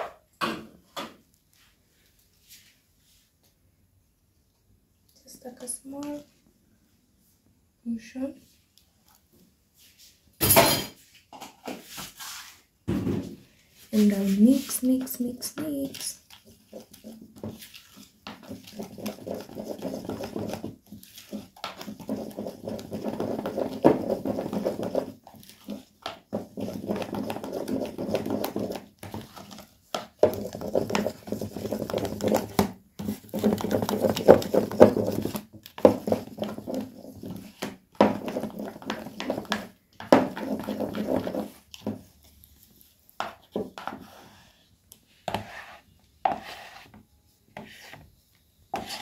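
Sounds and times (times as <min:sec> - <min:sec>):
spatula stirring thick batter: 0:13.6 - 0:49.0.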